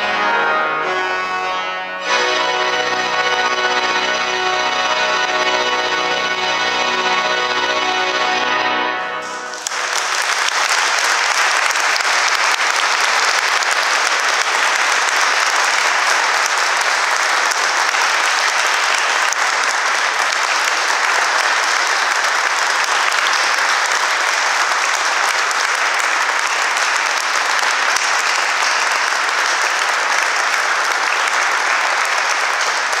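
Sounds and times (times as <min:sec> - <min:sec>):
pipe organ chord: 0:00.0 - 0:10.0
audience applauding: 0:02.0 - 0:33.0.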